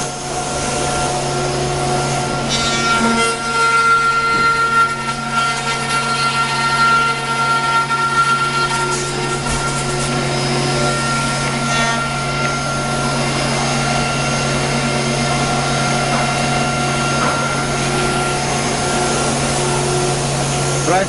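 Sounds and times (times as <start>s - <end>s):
motor hum: 0.0s - 21.0s
router spindle whine: 0.0s - 21.0s.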